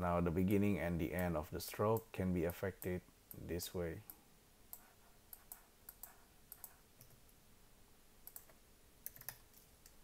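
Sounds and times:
computer mouse clicks: 0:04.1 - 0:07.3, 0:08.2 - 0:10.0.

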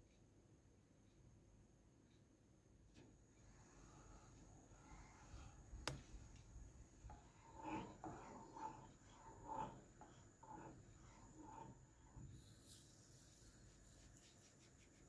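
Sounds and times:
spatula scraping a pan: 0:07.0 - 0:12.9.

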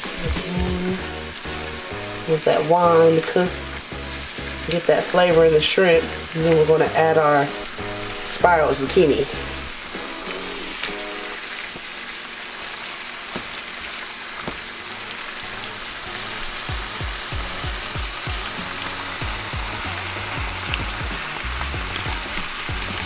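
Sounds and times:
background music with bass beat: 0:00.0 - 0:02.2, 0:16.7 - 0:23.0
shrimp sizzling in a skillet: 0:00.0 - 0:23.0.

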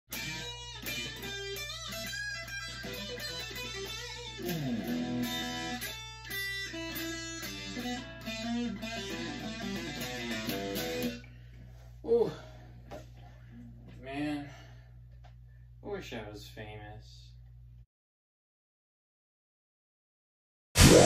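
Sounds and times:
electric guitar licks: 0:00.1 - 0:11.3.

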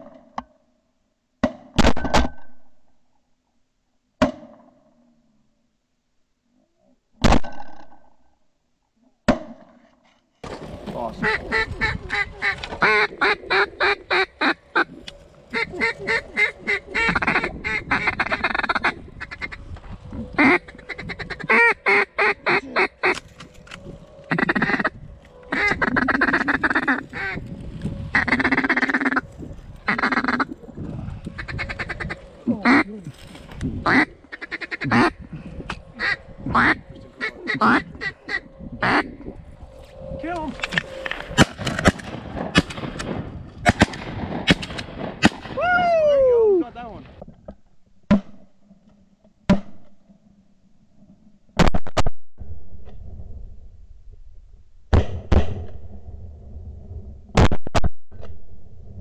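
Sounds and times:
duck quacking: 0:11.0 - 0:19.6, 0:20.3 - 0:23.3, 0:24.3 - 0:27.4, 0:28.1 - 0:29.3, 0:29.9 - 0:30.6, 0:31.2 - 0:33.0, 0:33.8 - 0:39.2.

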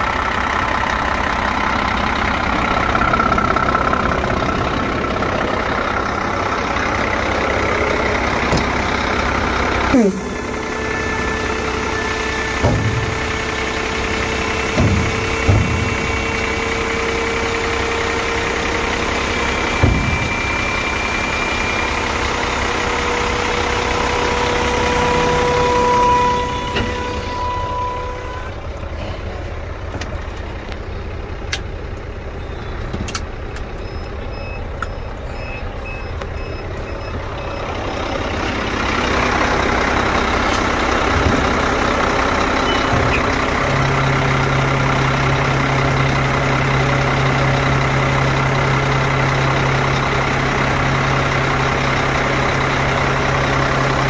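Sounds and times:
diesel truck engine running: 0:00.0 - 0:54.0
short electronic beeps: 0:33.8 - 0:37.8, 0:42.6 - 0:43.0.

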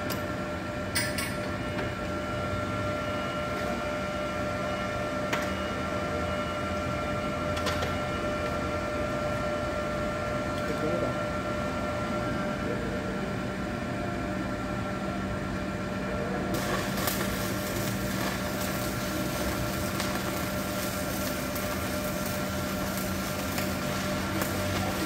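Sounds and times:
steady machine hum: 0:00.0 - 0:25.0
welding arc crackling and hissing: 0:16.5 - 0:25.0.

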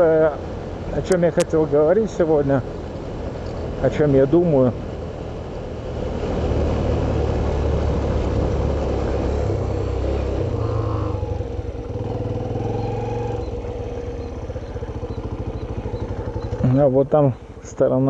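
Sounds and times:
motorcycle engine running: 0:06.8 - 0:18.0.

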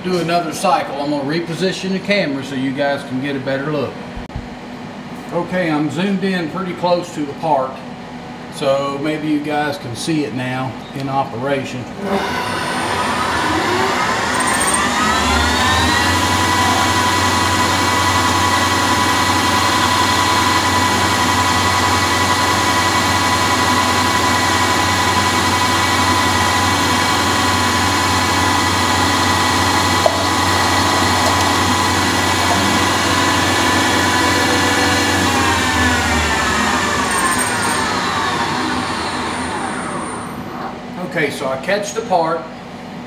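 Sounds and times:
lathe spindle whine: 0:12.0 - 0:40.7.

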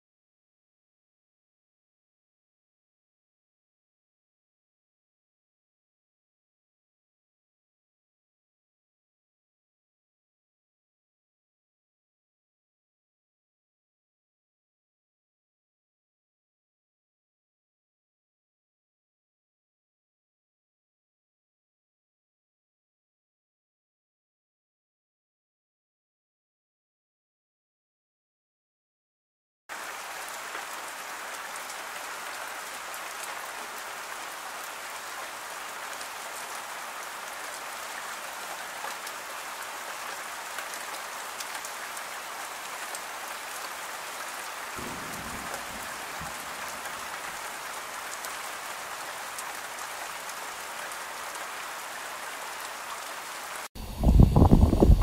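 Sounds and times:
steady rain: 0:29.7 - 0:55.0
wind rumbling on microphone: 0:53.8 - 0:55.0.

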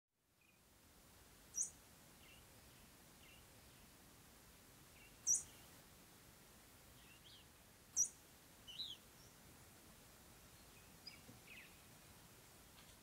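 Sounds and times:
bird chirps: 0:01.5 - 0:02.4, 0:05.0 - 0:05.7, 0:07.0 - 0:09.4, 0:10.6 - 0:11.9.

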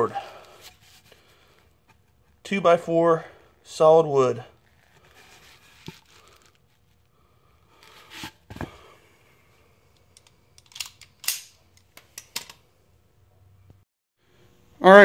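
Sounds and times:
soft handling rustling: 0:04.5 - 0:07.1.

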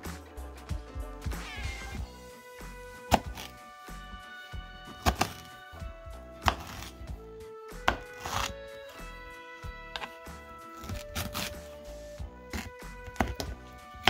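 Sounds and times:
background music: 0:00.0 - 0:14.0.

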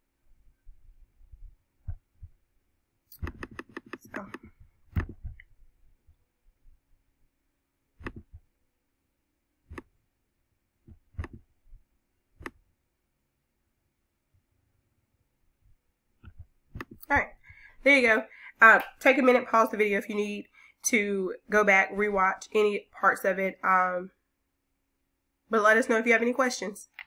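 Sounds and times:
computer mouse clicking: 0:03.1 - 0:05.5, 0:08.0 - 0:08.4, 0:10.9 - 0:11.4, 0:12.4 - 0:12.6, 0:16.2 - 0:17.1.

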